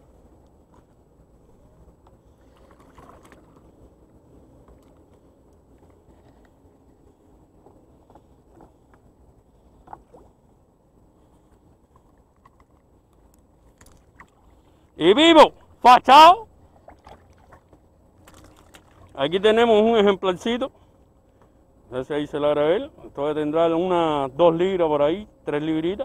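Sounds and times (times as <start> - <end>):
water lapping: 2.2 - 3.9, 16.6 - 19.3.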